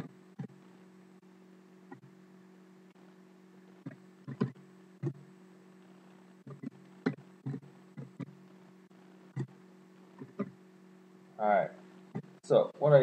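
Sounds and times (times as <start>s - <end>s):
low electrical hum: 0.0s - 13.0s
sharp irregular clicks: 3.8s - 5.2s.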